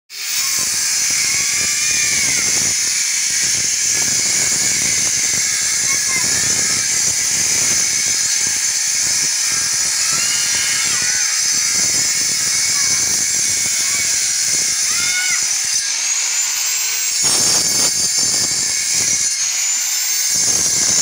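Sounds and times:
angle grinder cutting masonry: 0.1s - 21.0s.

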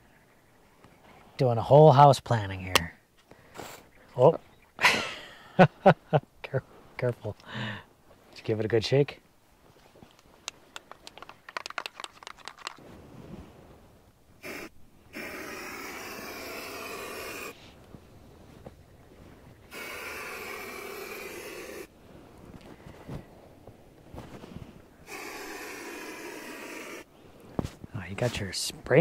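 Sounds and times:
spray can ball rattling: 10.7s - 12.8s
spray can hissing: 14.4s - 17.5s, 19.7s - 21.9s, 25.1s - 27.0s.

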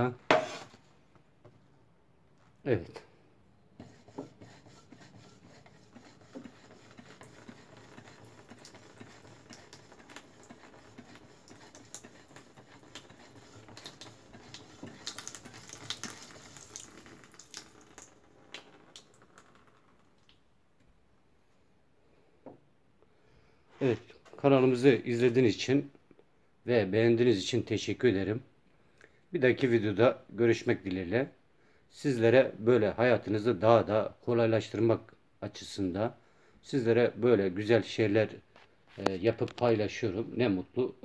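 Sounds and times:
water trickling onto metal tray: 6.3s - 20.4s.

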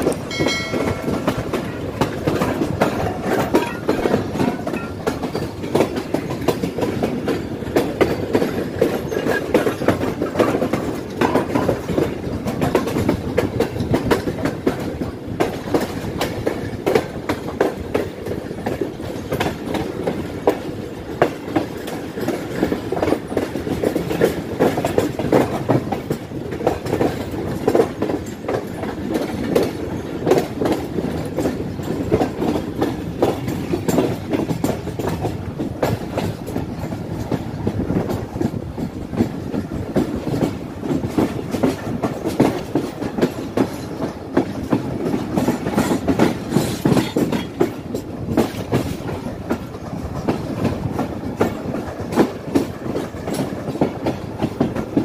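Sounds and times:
train wheel-on-rail rumble: 0.0s - 55.0s
wheels clattering over rail joints: 0.0s - 55.0s
brief high tone: 0.3s - 1.4s.

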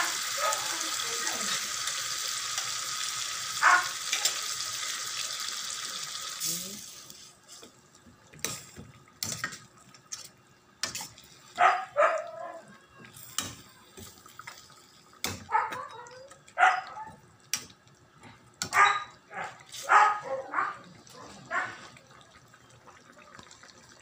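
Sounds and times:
dog barking: 0.3s - 0.9s, 3.6s - 4.0s, 11.6s - 12.8s, 15.4s - 17.2s, 18.6s - 21.8s.

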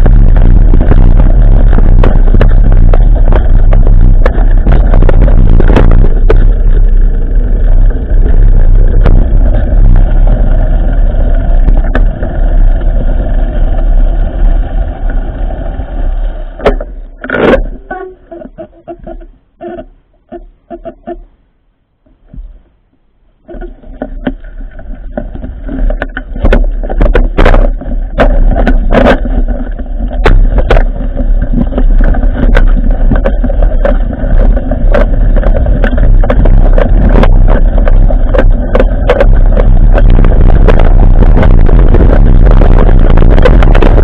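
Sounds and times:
bike rattling and knocking: 0.0s - 14.0s, 23.6s - 44.0s
wind buffeting microphone: 0.0s - 17.9s, 24.2s - 44.0s.

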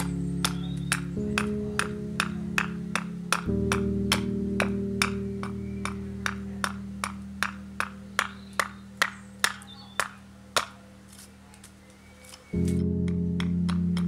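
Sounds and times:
background music: 0.0s - 10.7s, 12.6s - 14.0s
hatchet chopping wood: 0.0s - 10.8s.

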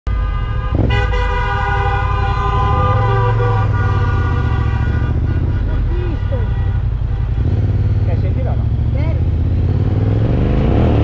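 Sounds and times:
vehicle horn: 0.1s - 8.4s
motorcycle engine idling: 2.3s - 9.6s.

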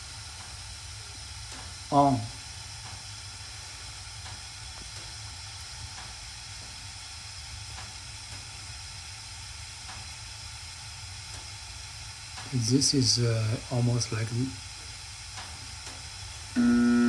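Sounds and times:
gas burners rumbling and hissing: 0.0s - 17.0s.

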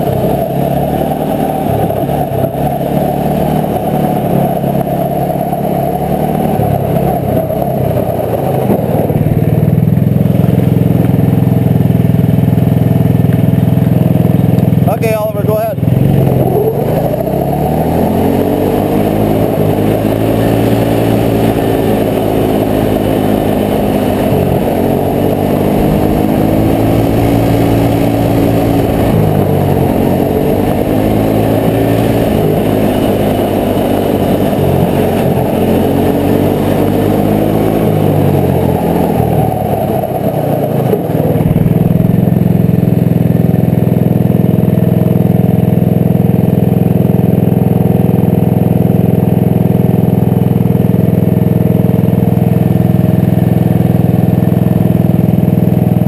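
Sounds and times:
snowmobile engine revving: 0.0s - 9.4s, 14.0s - 44.3s.

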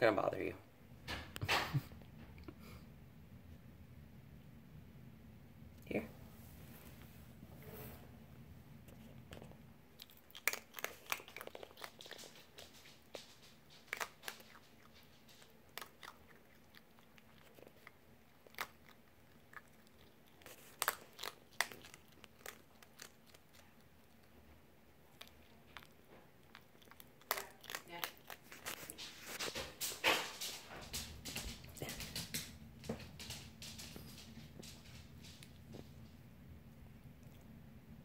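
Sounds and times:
fox crunching dry food: 8.8s - 36.1s.

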